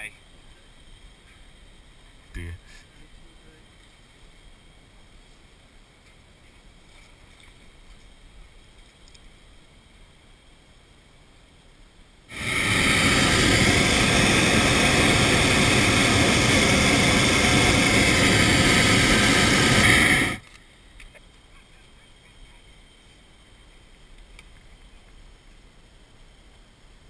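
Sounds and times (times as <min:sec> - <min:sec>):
propane burner blast: 0:12.3 - 0:20.5.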